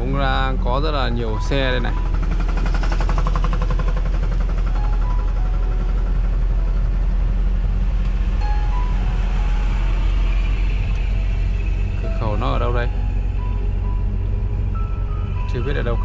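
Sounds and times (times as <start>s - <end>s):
diesel truck engine rumbling: 0.0s - 16.0s.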